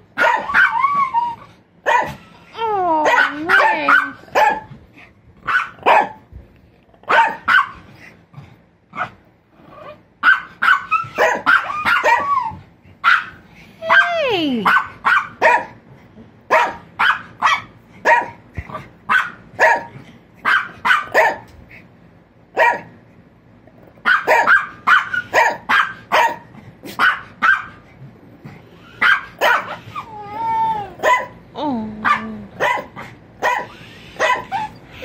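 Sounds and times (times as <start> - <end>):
dog whining cries: 0.2 - 4.1, 10.7 - 12.7, 13.8 - 14.7, 28.8 - 31.3, 33.4 - 35.0
dog barking sharply: 19.1 - 21.4, 24.1 - 27.7.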